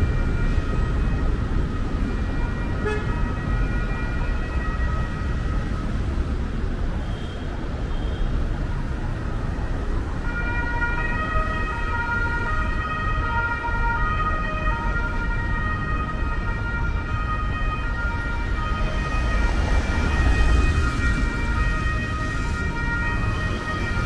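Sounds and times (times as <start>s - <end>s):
emergency siren wailing: 0.0s - 6.7s, 8.6s - 24.0s
traffic rumbling on cobbles: 8.3s - 24.0s.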